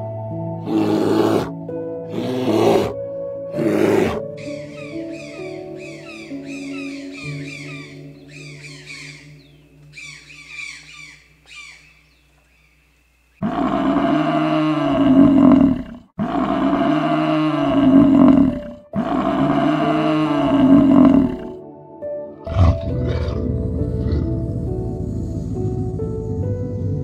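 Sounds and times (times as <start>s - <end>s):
buffalo bellowing: 0.6s - 5.4s, 13.4s - 21.6s, 22.4s - 24.4s
toucan squawking: 4.4s - 12.8s.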